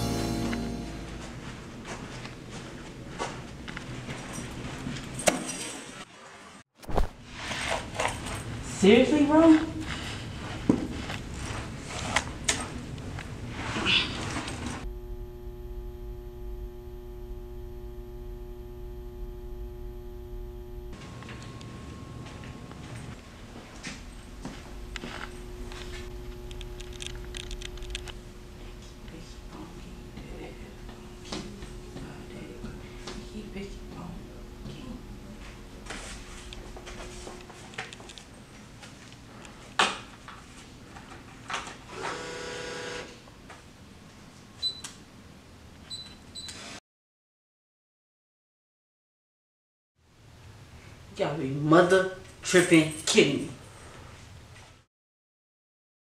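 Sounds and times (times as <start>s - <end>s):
vending machine electrical hum: 7.8s - 46.5s.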